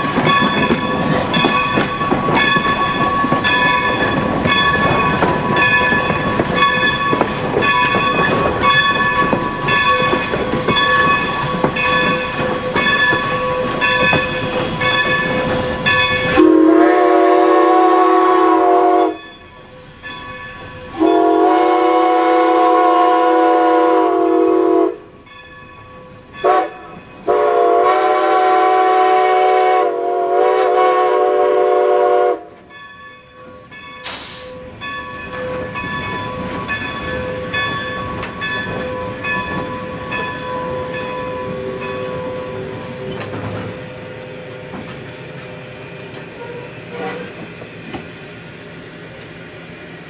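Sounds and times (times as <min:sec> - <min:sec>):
locomotive mechanical clatter: 0:00.0 - 0:16.4, 0:34.8 - 0:44.0
steam whistle blasts: 0:16.3 - 0:19.2, 0:20.9 - 0:25.1, 0:26.4 - 0:32.5, 0:46.4 - 0:47.3
steam hiss: 0:34.0 - 0:34.7.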